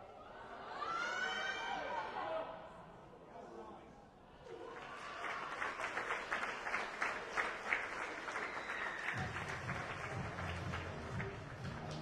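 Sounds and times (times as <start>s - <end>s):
crowd clapping: 4.7s - 12.0s.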